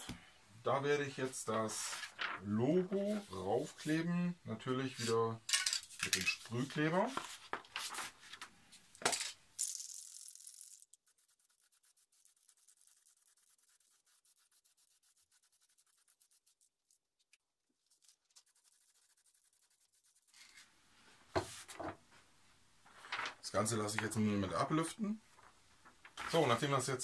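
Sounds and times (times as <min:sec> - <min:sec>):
paper sheets rustling: 0:01.2 - 0:04.0, 0:06.0 - 0:08.5, 0:22.8 - 0:24.2, 0:25.3 - 0:26.7.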